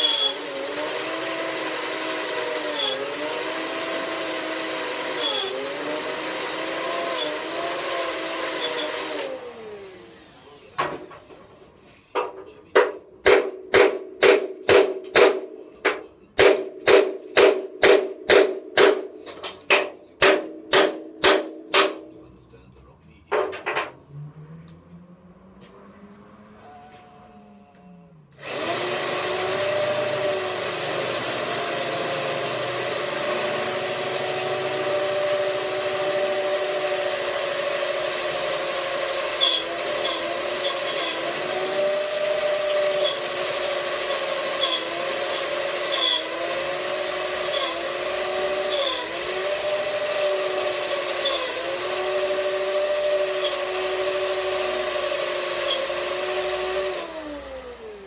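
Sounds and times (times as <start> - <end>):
power drill drilling metal: 0.0 - 11.2, 28.4 - 58.0.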